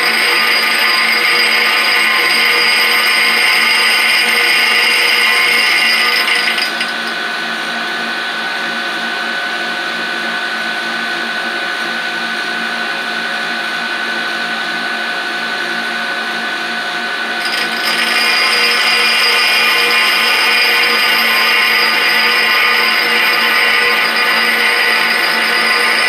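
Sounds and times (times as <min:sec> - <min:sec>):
grinding wheel hissing on metal: 0:00.0 - 0:07.2, 0:17.4 - 0:26.0
grinder motor hum: 0:00.0 - 0:07.3, 0:17.1 - 0:26.0.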